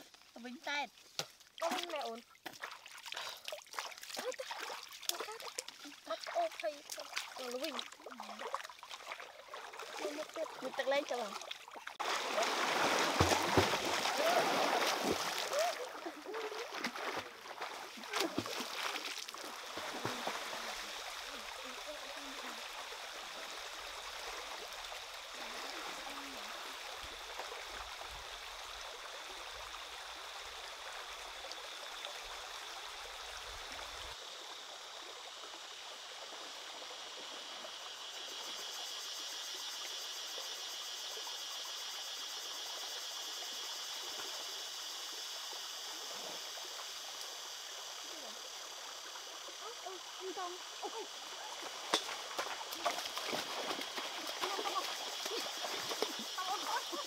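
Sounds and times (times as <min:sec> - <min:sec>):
people splashing in stream: 0:00.0 - 0:28.9, 0:46.1 - 0:57.0
stream water trickling: 0:00.0 - 0:57.0.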